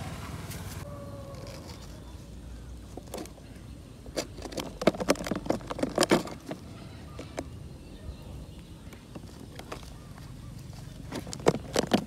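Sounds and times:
plastic cup clicking and crackling: 0:04.1 - 0:07.6, 0:11.1 - 0:12.0.

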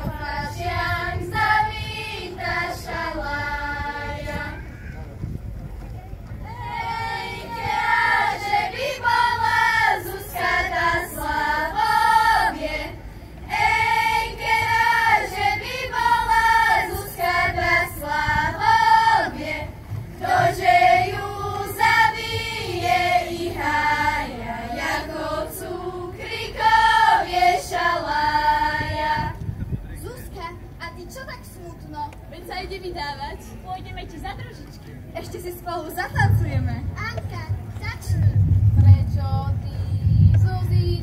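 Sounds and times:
girls' choir singing in unison: 0:00.0 - 0:04.6, 0:06.5 - 0:29.4.

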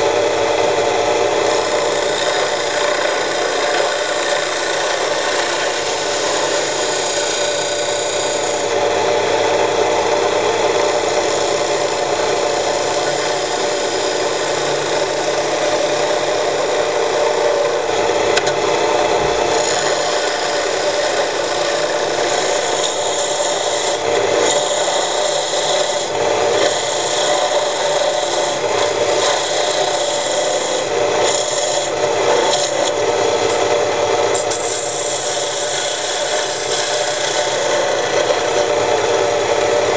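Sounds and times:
chisel scraping spinning wood: 0:00.0 - 0:39.9
lathe motor hum: 0:00.0 - 0:39.9.

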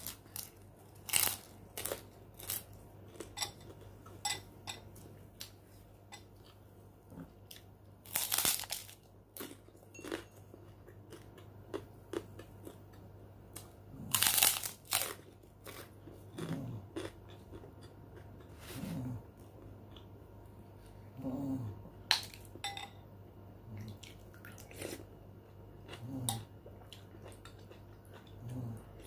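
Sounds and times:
cracker crunching and chewing: 0:00.0 - 0:04.2, 0:07.2 - 0:18.6.

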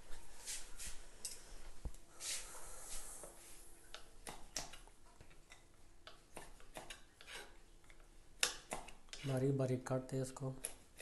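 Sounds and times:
knife slicing on wooden board: 0:06.3 - 0:07.6.

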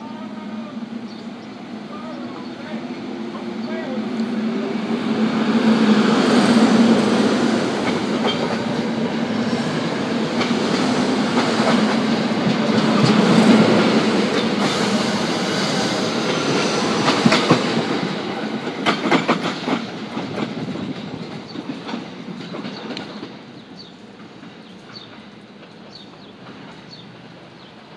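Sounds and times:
electric train rumbling past: 0:00.0 - 0:27.9
wheels clacking over rail joints: 0:06.2 - 0:27.8.

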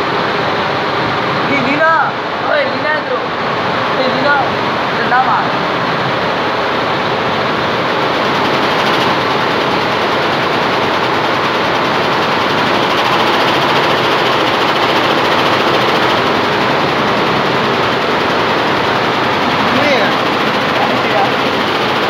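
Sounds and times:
embroidery machine rattling: 0:07.4 - 0:22.0.

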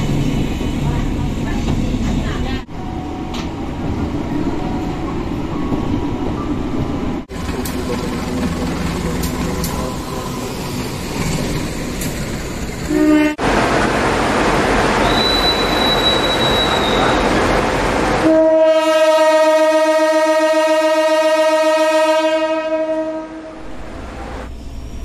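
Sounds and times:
rushing train noise: 0:00.0 - 0:25.0
locomotive horn blast: 0:12.9 - 0:13.5, 0:18.2 - 0:23.8
high squeal: 0:15.0 - 0:17.4.

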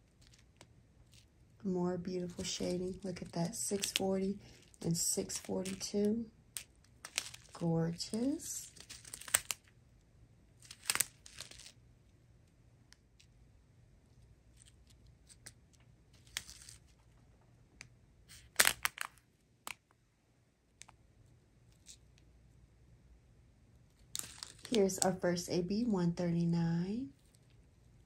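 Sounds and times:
plastic bags crinkling: 0:02.2 - 0:06.0, 0:07.0 - 0:09.7.

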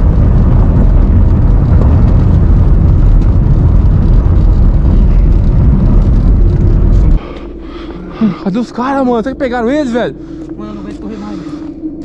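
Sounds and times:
car driving on dirt track: 0:00.0 - 0:07.3
wind noise: 0:00.0 - 0:12.0.

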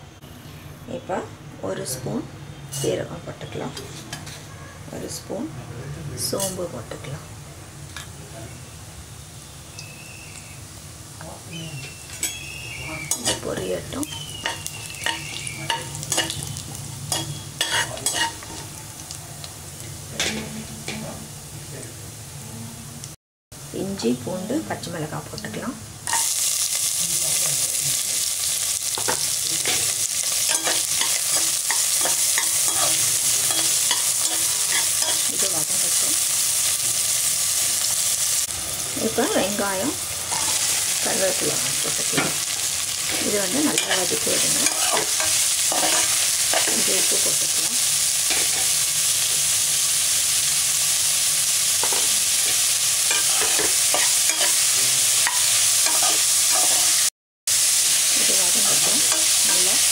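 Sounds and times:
food sizzling in hot oil: 0:01.8 - 0:04.5, 0:06.2 - 0:59.9
spatula scraping pot: 0:17.1 - 0:18.6, 0:43.1 - 0:46.9, 0:53.1 - 0:54.6
spatula scraping and tapping pan: 0:17.1 - 0:18.7, 0:53.1 - 0:54.6.

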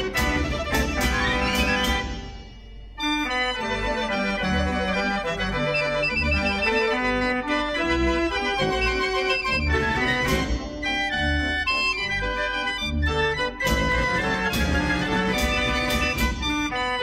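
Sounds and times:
drum beats: 0:00.0 - 0:02.8, 0:08.6 - 0:11.1, 0:13.6 - 0:16.8
fairground organ playing a tune: 0:03.0 - 0:17.0.

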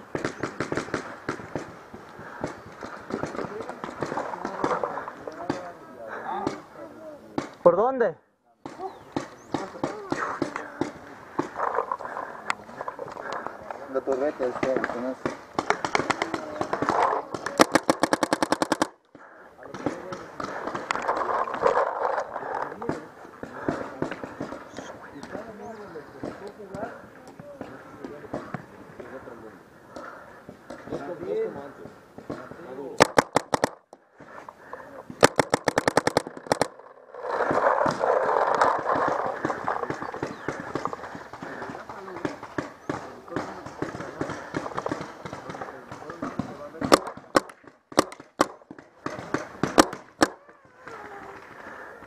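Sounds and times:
paintball marker rapid firing: 0:00.0 - 0:06.7, 0:13.9 - 0:19.0, 0:19.7 - 0:25.4, 0:32.3 - 0:33.8, 0:35.2 - 0:51.8
rough rushing noise: 0:35.2 - 0:41.3.

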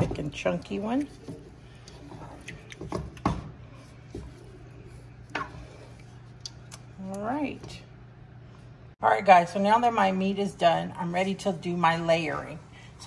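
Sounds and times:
wooden spoon stirring thick sauce: 0:00.0 - 0:06.6
steady low hum: 0:00.0 - 0:13.0.

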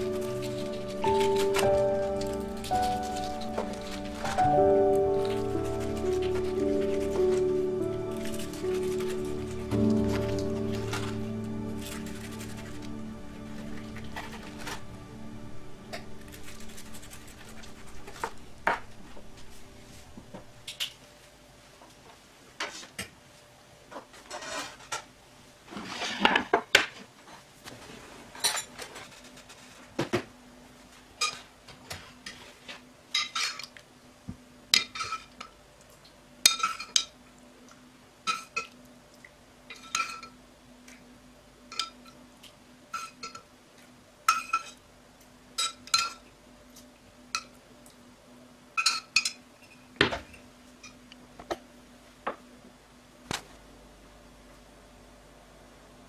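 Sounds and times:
kitchenware scrape: 0:00.0 - 0:14.9, 0:24.1 - 0:25.1
faint steady hum: 0:00.0 - 0:25.8, 0:27.0 - 0:56.0.

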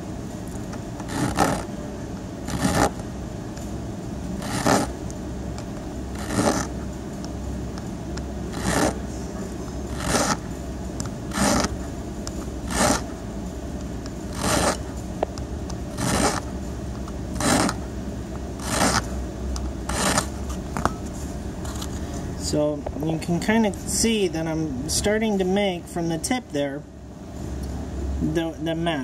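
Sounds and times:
hand file scraping metal key: 0:08.5 - 0:09.0, 0:09.9 - 0:10.4, 0:14.3 - 0:14.8.

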